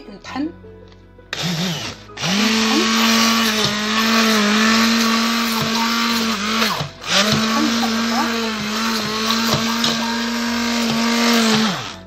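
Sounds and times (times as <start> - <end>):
stick blender motor: 1.3 - 12.0.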